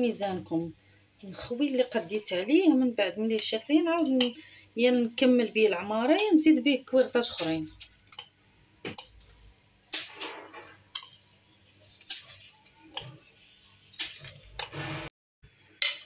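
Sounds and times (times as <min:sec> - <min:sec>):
metal spoon scraping glass bowl: 0:07.3 - 0:08.3.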